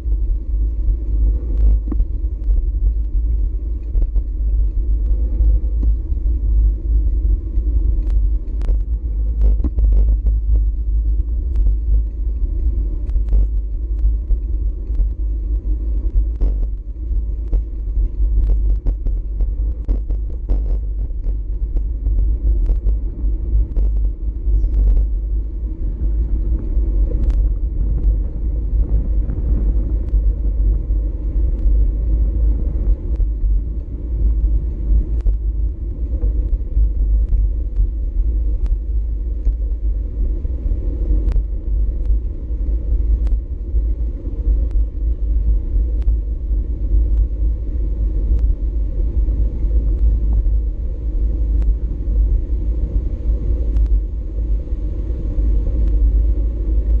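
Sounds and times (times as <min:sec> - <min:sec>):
wind rumbling on microphone: 0:00.0 - 0:57.0
sharp clicks and rattles: 0:01.5 - 0:25.5.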